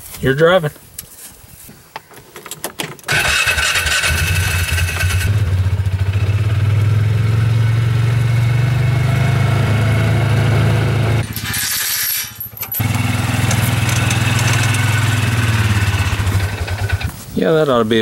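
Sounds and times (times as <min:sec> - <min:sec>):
engine cranking and running: 0:03.1 - 0:06.7, 0:11.2 - 0:17.2.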